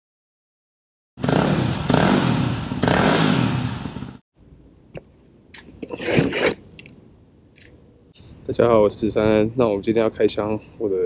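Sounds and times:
motorcycle engine revving: 1.2s - 4.2s.

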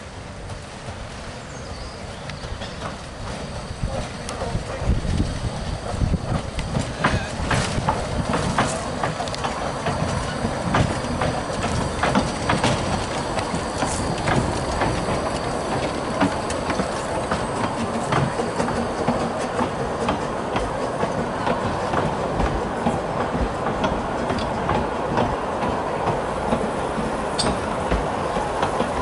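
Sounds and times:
steam train rumbling: 0.0s - 29.0s
wheels clicking over rail joints: 0.4s - 29.0s.

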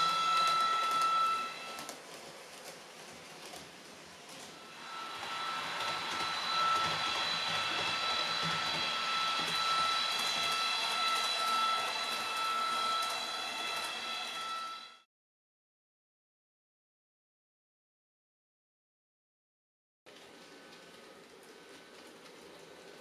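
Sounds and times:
model train electric whine: 0.0s - 3.6s, 4.2s - 15.0s.

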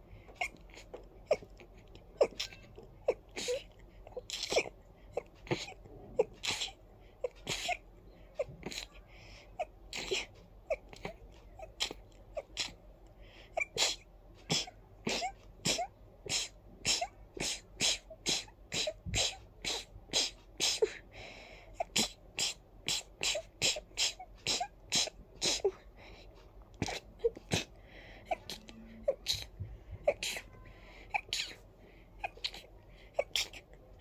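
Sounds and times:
person stifling sneezes: 5.4s - 7.8s, 13.6s - 21.0s, 21.8s - 25.8s, 26.8s - 27.7s, 28.3s - 31.6s, 32.2s - 33.6s.

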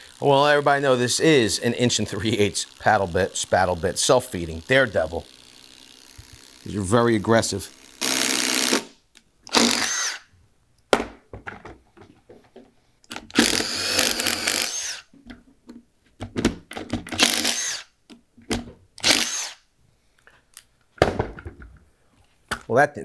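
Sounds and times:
impact driver boring into wood: 0.0s - 10.3s, 13.2s - 15.1s, 16.9s - 18.0s, 19.0s - 19.6s.

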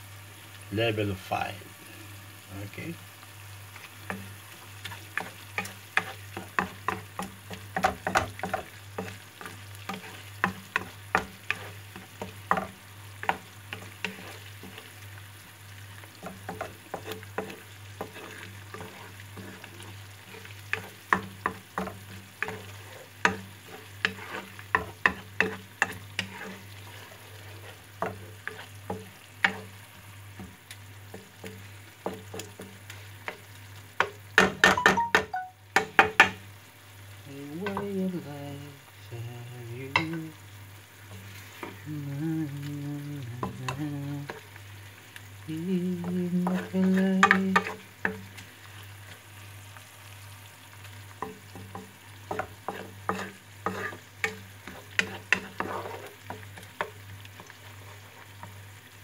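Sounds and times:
sauce sizzling: 0.0s - 59.0s
spatula scraping a pan: 3.7s - 15.0s, 16.0s - 34.2s, 41.0s - 41.8s, 46.0s - 49.2s, 51.1s - 58.7s.

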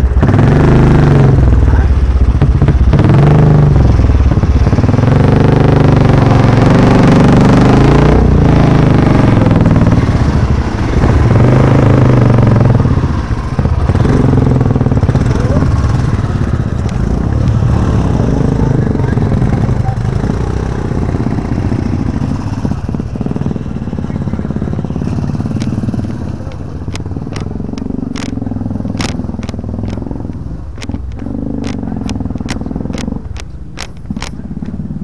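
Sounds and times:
motorcycle engines at low revs: 0.0s - 35.0s
loose stones clicking and crunching: 25.5s - 34.8s.

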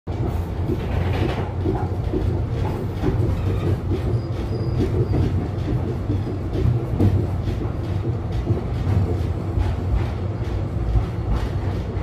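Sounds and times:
tram car rattling and knocking: 0.1s - 12.0s
tram wheels rumbling on rails: 0.1s - 12.0s.

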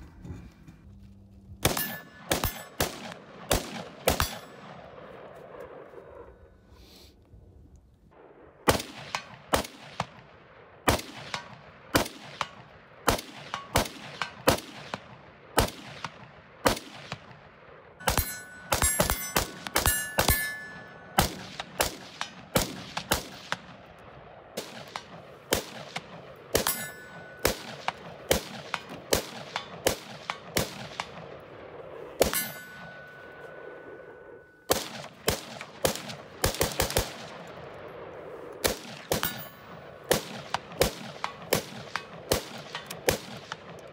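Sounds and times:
bullets ringing on steel targets: 1.6s - 3.2s, 4.1s - 4.8s, 13.4s - 14.5s, 18.0s - 22.4s, 26.0s - 31.2s, 32.2s - 34.7s, 39.1s - 39.8s
rifle shots: 1.6s - 6.3s, 8.1s - 43.9s.

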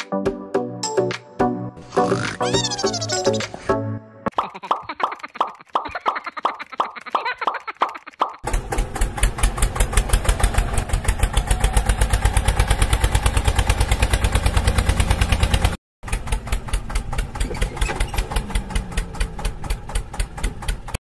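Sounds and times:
tractor engine idling: 8.5s - 21.0s.

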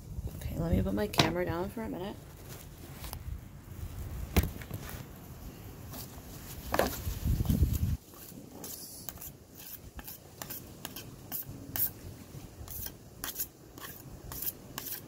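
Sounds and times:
putty knives scraping: 8.1s - 12.0s, 12.6s - 15.0s.

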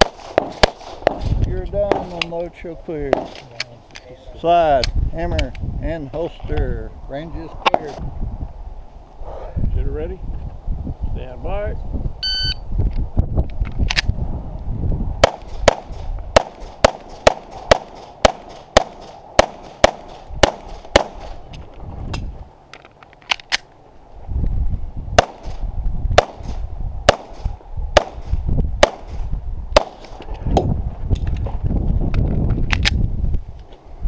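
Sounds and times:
pistol shots: 0.0s - 2.3s, 3.1s - 3.5s, 15.2s - 21.4s, 26.2s - 27.4s, 28.0s - 29.2s, 29.8s - 30.2s
low rumble on microphone: 4.9s - 16.4s, 21.3s - 22.6s, 24.0s - 34.0s.

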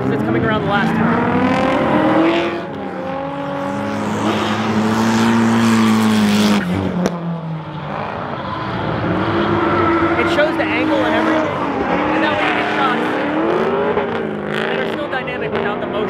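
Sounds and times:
car engines revving high: 0.0s - 16.0s.

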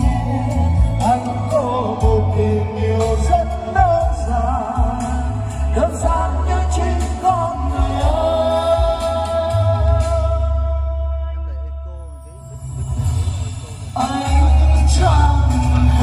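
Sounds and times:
man singing into a microphone: 0.0s - 11.3s, 13.9s - 16.0s
karaoke backing track with bass beat: 0.0s - 16.0s.

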